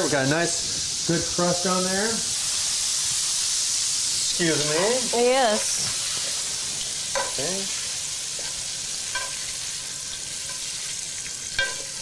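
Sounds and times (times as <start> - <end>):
meat sizzling in a frying pan: 0.0 - 12.0
utensil tapping pan: 7.1 - 7.6, 8.4 - 12.0.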